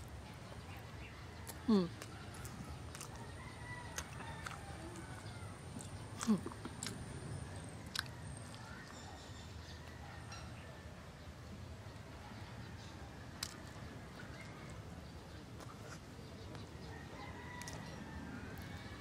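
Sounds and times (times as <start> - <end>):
sharp wet clicks: 1.4 - 7.0, 13.4 - 13.7
chewing and lip smacks: 1.4 - 7.1, 7.8 - 8.9, 13.4 - 13.8
person humming mm: 1.7 - 2.0.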